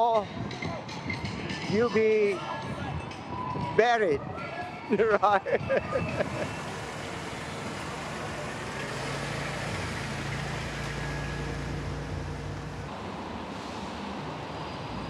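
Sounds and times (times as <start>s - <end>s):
road traffic noise: 0.0s - 15.0s
vehicle engine humming: 5.9s - 13.4s.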